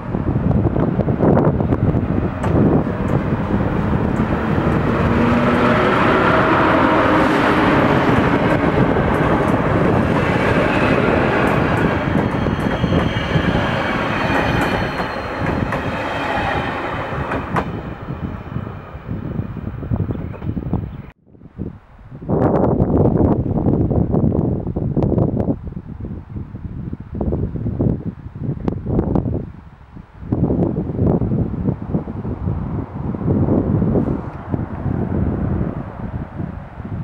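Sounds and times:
train passing: 0.0 - 20.5, 30.9 - 37.0.

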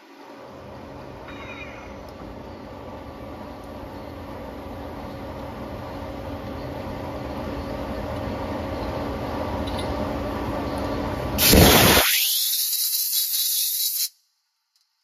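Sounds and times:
loud hiss: 11.4 - 14.2.

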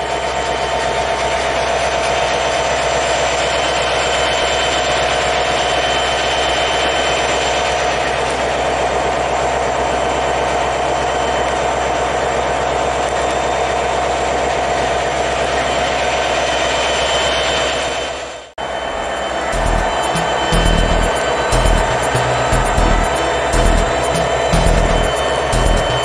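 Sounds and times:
diesel locomotives passing: 18.6 - 26.0
steady whine: 18.6 - 26.0.

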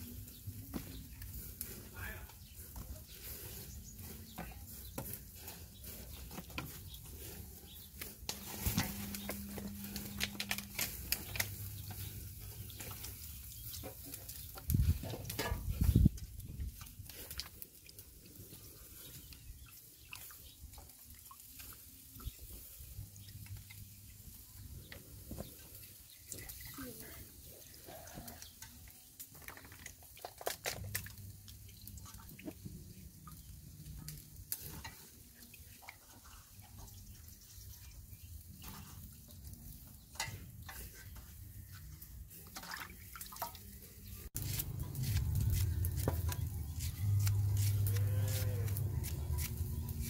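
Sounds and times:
hands swishing in water basin: 44.4 - 50.0.

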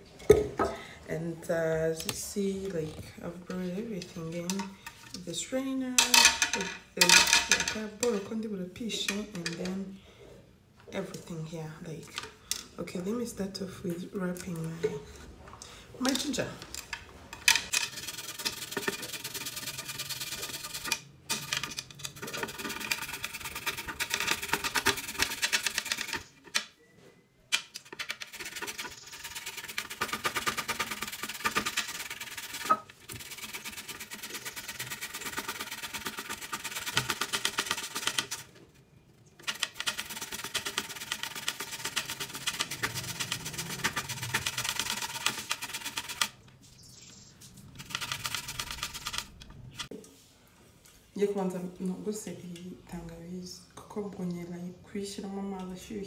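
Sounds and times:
ginger grated on metal grater: 17.7 - 26.4, 27.8 - 38.6, 39.4 - 46.4, 47.7 - 49.9.

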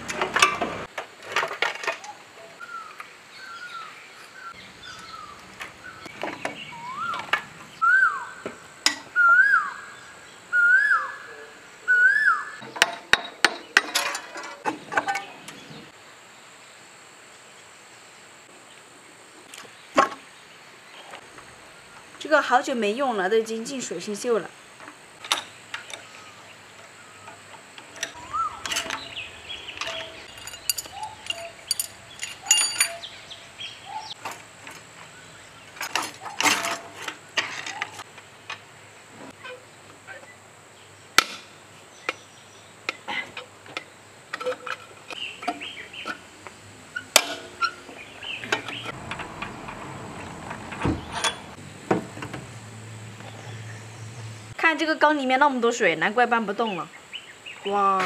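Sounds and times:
hand tools clinking on metal: 12.7 - 15.3, 27.2 - 33.5, 35.8 - 38.0, 50.5 - 51.6.

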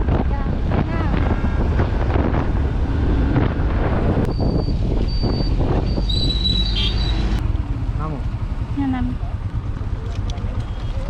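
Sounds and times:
wind buffeting microphone: 0.0 - 7.5.

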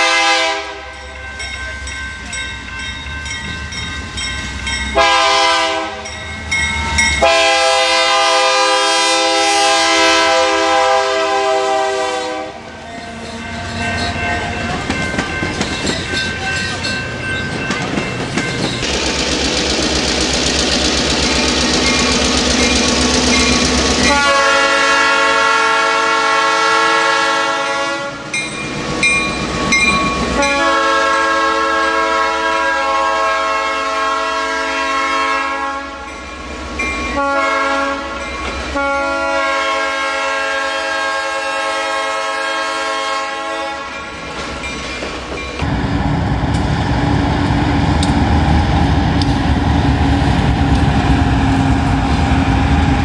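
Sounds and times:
locomotive air horn blasts: 0.0 - 1.0, 5.0 - 6.1, 7.2 - 13.6, 24.0 - 28.3, 30.3 - 36.1, 37.1 - 44.0
train rumbling and rattling: 0.0 - 53.0.

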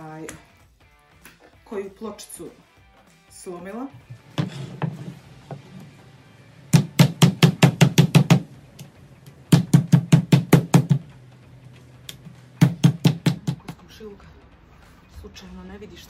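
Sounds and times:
mallet pounding meat on board: 6.7 - 8.5, 9.5 - 11.1, 12.6 - 13.7.

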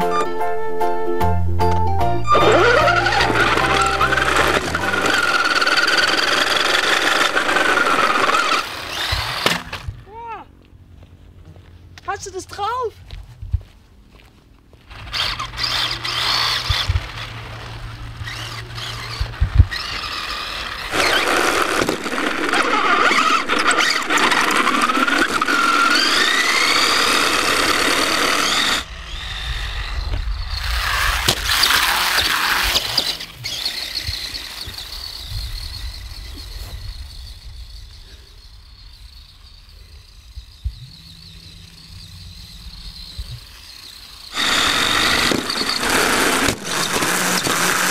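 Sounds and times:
rc car motor whining: 2.3 - 10.2, 14.8 - 47.9
tyre noise on tarmac: 13.0 - 47.9.

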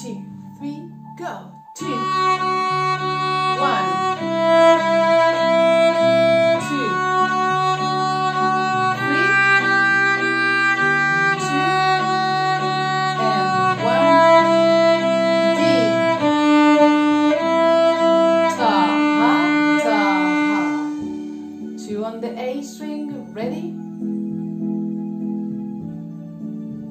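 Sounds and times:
backing track: 0.0 - 26.9
violin playing simple tune: 1.8 - 21.9.

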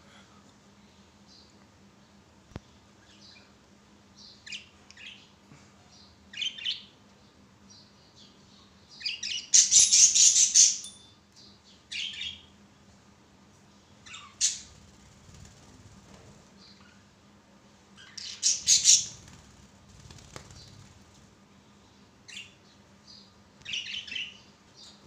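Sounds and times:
budgerigars chirping: 18.0 - 19.2.

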